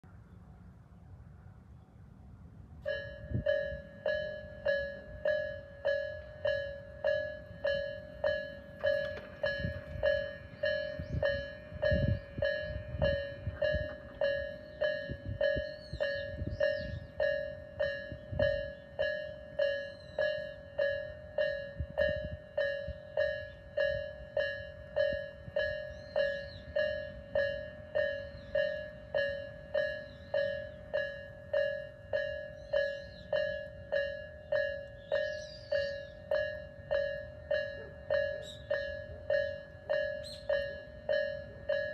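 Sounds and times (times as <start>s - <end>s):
level crossing warning bell: 2.8s - 41.9s.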